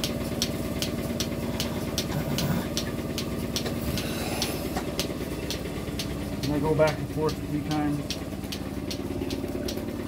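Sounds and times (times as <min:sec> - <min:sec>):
pulsator hiss-click: 0:00.0 - 0:07.0
milking pump hum: 0:00.0 - 0:10.0.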